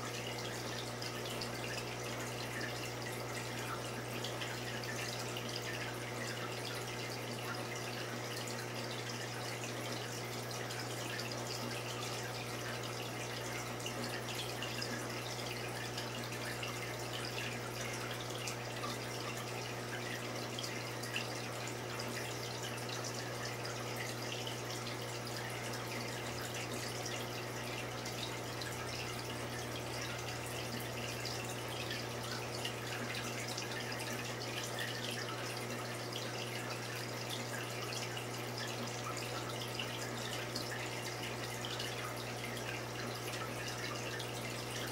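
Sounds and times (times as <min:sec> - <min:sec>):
water trickling and dripping: 0:00.0 - 0:44.9.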